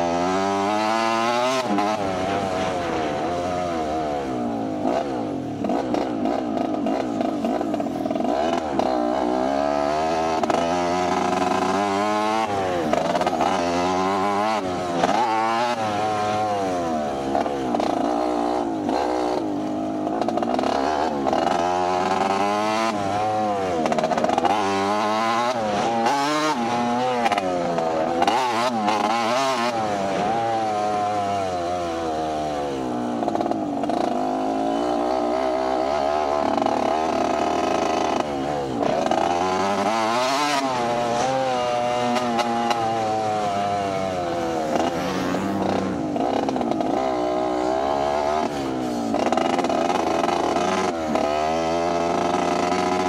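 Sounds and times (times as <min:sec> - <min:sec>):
motorbike engine revving: 0:00.0 - 0:53.0.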